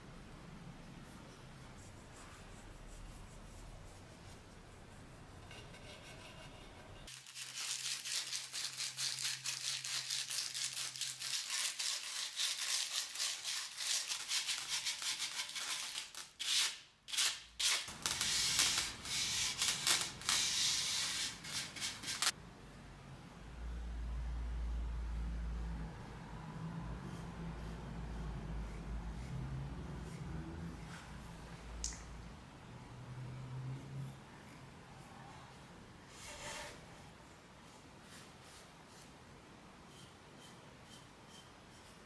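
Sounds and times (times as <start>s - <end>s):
sandpaper rubbing on wood: 7.1s - 16.7s, 17.6s - 22.3s.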